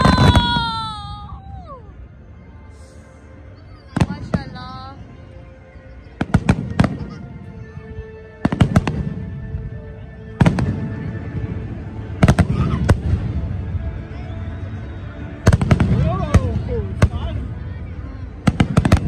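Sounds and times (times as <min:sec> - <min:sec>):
fireworks bangs: 0:00.0 - 0:00.9, 0:08.4 - 0:09.3, 0:15.4 - 0:17.3, 0:18.4 - 0:19.0.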